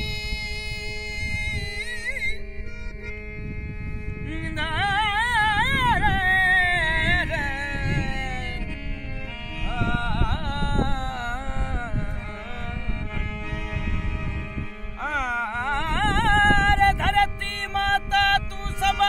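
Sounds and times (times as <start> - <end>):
harmonium drone: 0.0 - 19.0
man singing ornamented phrases: 4.2 - 12.9, 15.0 - 19.0.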